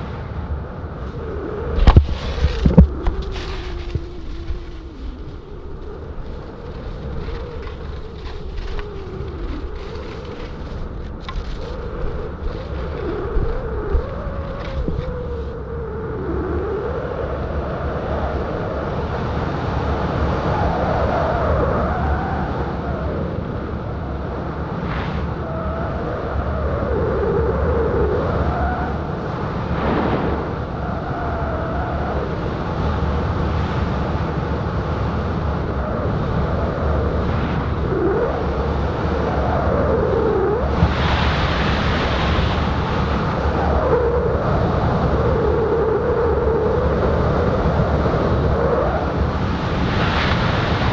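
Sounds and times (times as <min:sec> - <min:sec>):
wind buffeting microphone: 0:00.0 - 0:50.9.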